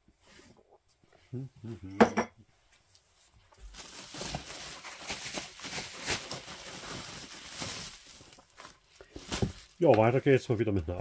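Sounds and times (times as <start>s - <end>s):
bubble wrap rustling and crinkling: 3.0s - 10.5s.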